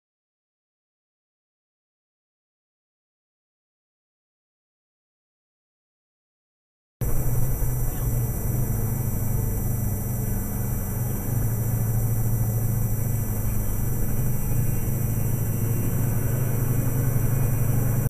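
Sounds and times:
faint high-pitched whine: 7.0 - 18.0
vehicle engine and road drone: 7.0 - 18.0.

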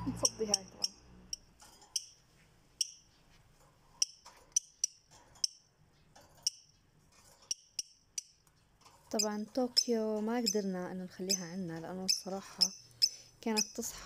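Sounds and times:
lovebird shrill chirps: 0.0 - 2.2, 9.1 - 13.9.

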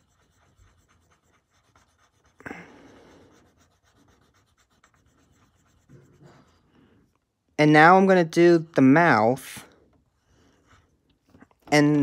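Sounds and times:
pencil scratching on paper: 0.0 - 7.1, 10.2 - 11.2.

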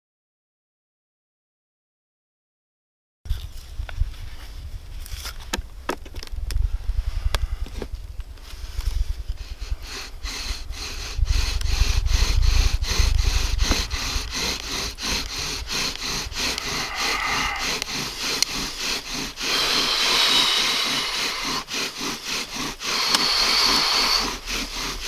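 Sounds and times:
wood rubbing on wood: 8.4 - 25.0.

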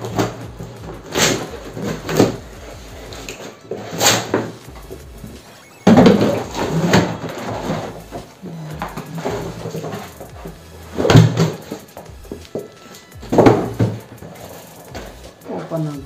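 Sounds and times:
packing tape ripping: 0.0 - 5.6
cardboard scraping and rustling: 0.0 - 15.8.

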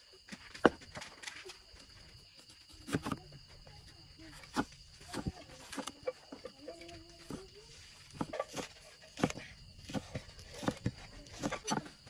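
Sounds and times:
cleaver chopping on wooden block: 8.1 - 12.0.

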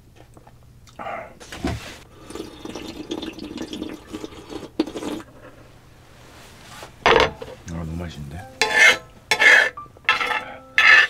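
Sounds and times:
person slurping broth: 2.0 - 5.4.

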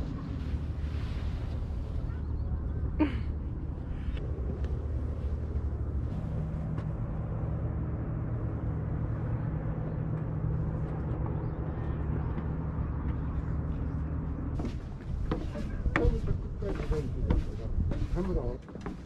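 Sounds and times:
low open-air rumble: 0.0 - 19.0.

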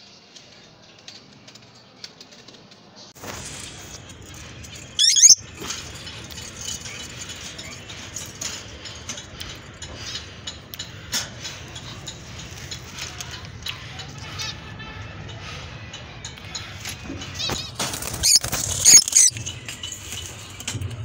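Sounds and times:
lovebird shrill screech: 5.0 - 5.4, 18.2 - 19.3
squeaky bird chirps and clicks: 5.0 - 5.4, 17.4 - 19.5.

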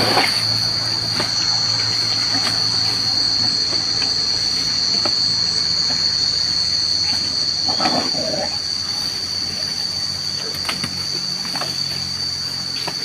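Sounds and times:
low hum: 0.0 - 11.2
cicadas buzzing: 0.0 - 13.0.

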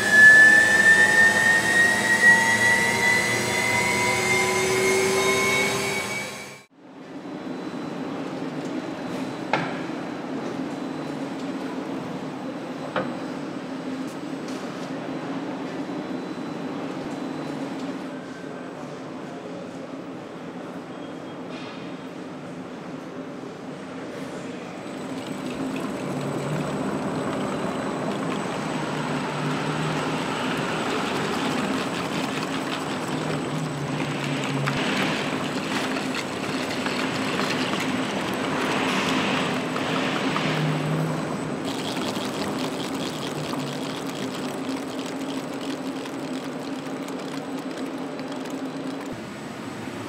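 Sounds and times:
wheels turning on test rollers: 24.8 - 49.2.

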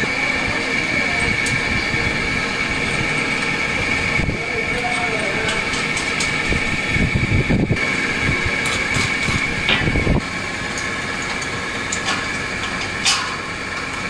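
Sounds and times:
machine hum with high whine: 0.0 - 14.0
rumbling handling noise: 0.0 - 14.0
sharp metal clicks: 10.7 - 14.0.

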